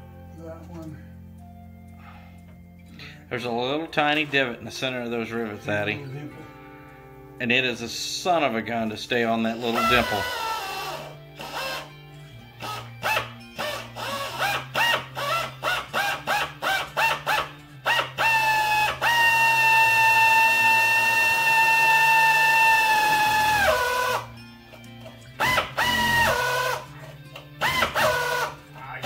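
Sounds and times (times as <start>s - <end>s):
pneumatic drill whining: 9.5s - 28.7s.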